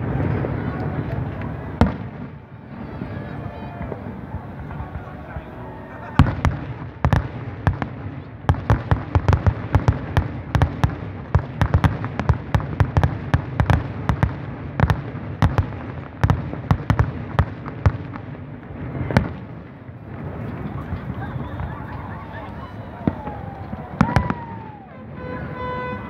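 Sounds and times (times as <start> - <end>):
fireworks bursting: 0.0 - 26.0.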